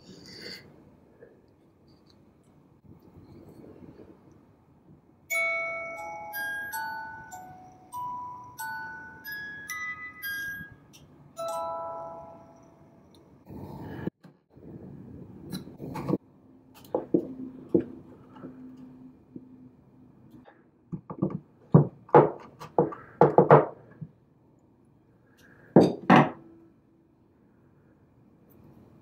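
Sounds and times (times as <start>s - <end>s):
knocks on wood: 20.9s - 23.8s.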